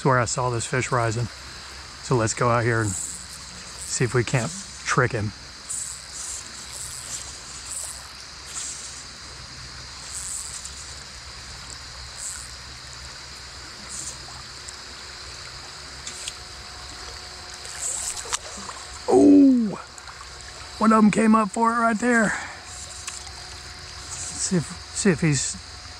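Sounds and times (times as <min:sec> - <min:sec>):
high insect drone: 0:00.0 - 0:25.9
creek current rushing: 0:12.2 - 0:25.7.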